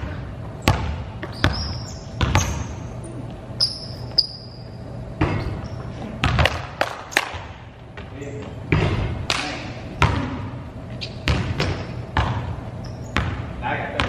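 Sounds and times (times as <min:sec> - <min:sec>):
basketballs bouncing on gym floor: 0:00.0 - 0:03.0, 0:03.7 - 0:14.0
sneaker squeaks: 0:00.0 - 0:13.6.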